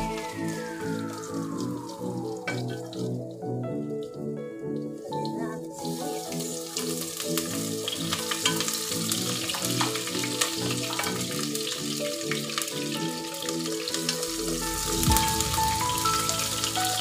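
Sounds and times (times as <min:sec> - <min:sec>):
background music: 0:00.0 - 0:17.0
food sizzling in hot oil: 0:05.7 - 0:17.0.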